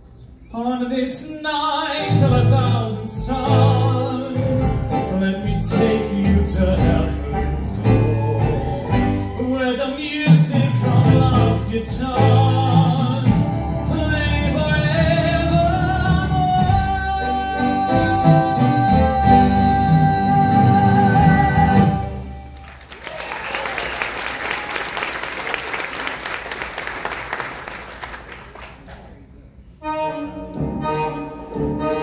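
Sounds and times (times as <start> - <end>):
man singing: 0.5 - 22.3
live band playing: 2.0 - 22.8, 29.8 - 32.0
audience applause: 22.5 - 29.2.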